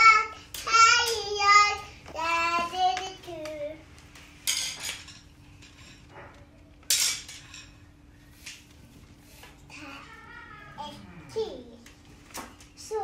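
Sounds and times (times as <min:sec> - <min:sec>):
child singing: 0:00.0 - 0:03.8.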